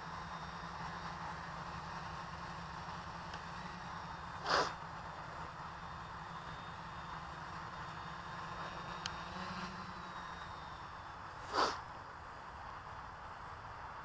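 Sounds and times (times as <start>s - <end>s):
quadcopter hovering: 0.0s - 14.0s
small tick: 9.0s - 9.2s.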